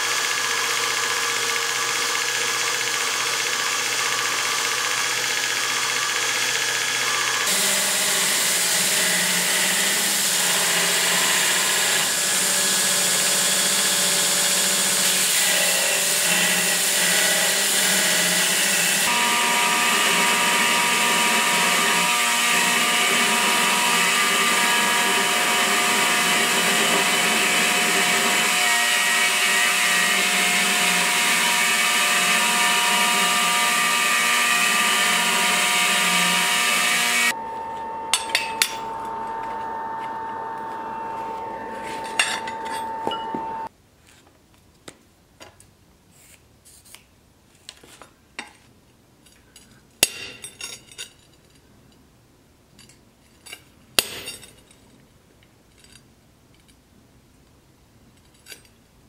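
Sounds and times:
belt grinder grinding steel: 0.0 - 43.7
quiet steady hum: 37.4 - 47.6.

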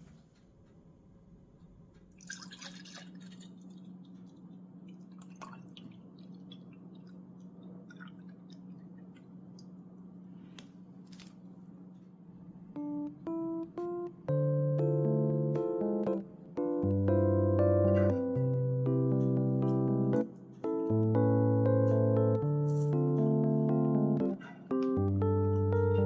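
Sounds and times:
liquid dripping: 2.1 - 9.8
juice pouring into a glass: 2.2 - 3.7
steady low hum: 3.0 - 26.0.

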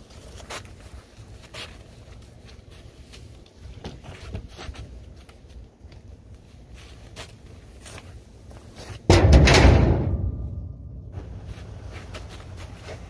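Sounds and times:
scuffing steps on asphalt: 0.0 - 9.1, 11.2 - 13.0
coverall rustling: 11.2 - 13.0.

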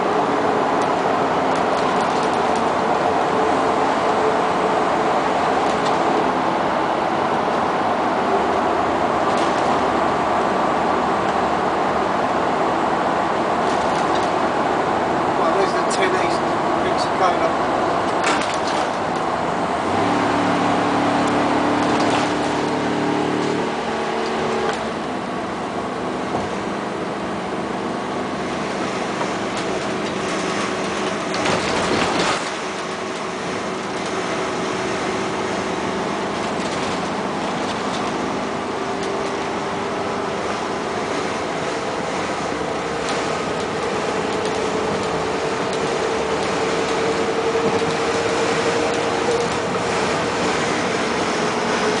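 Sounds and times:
road and engine noise: 0.0 - 52.0.

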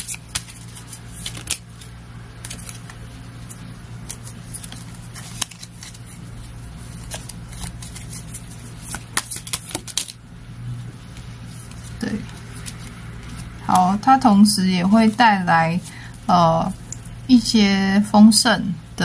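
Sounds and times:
cards shuffled by hand: 0.0 - 10.2, 11.1 - 14.0
steady low hum: 0.0 - 19.0.

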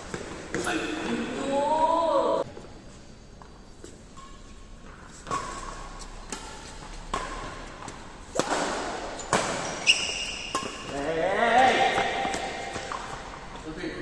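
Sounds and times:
rackets striking shuttlecock: 5.2 - 13.6.

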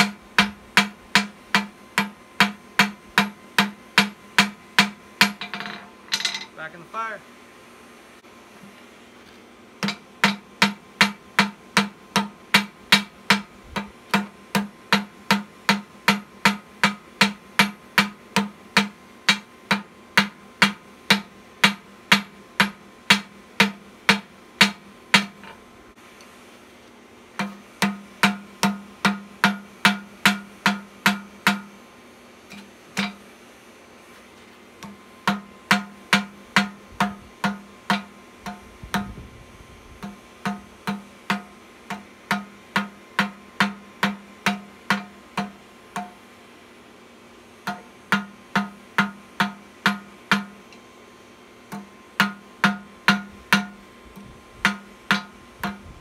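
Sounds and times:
hammer striking steel on anvil: 0.0 - 6.6, 9.8 - 13.5, 27.4 - 31.7, 32.5 - 33.2, 34.8 - 39.1, 47.7 - 50.6, 54.6 - 55.8.

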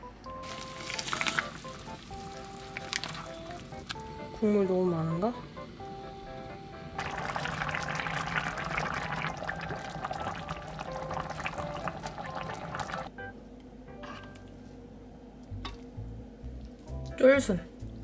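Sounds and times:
soft background music: 0.0 - 18.0
ladle scooping and pouring broth: 0.4 - 4.0, 7.0 - 13.1.

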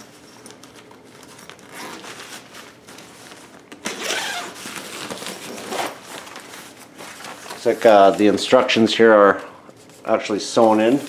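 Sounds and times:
fabric rustling: 0.0 - 8.6
zipper pulled open: 1.6 - 2.1, 3.8 - 6.0.

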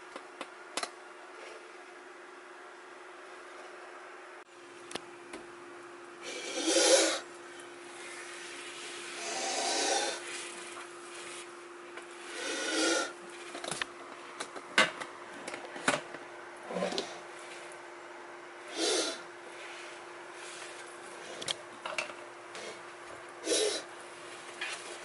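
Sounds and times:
faint steady hum: 0.0 - 25.0
cobra hissing: 6.2 - 11.5, 12.1 - 13.2, 18.6 - 21.4, 23.4 - 23.9.

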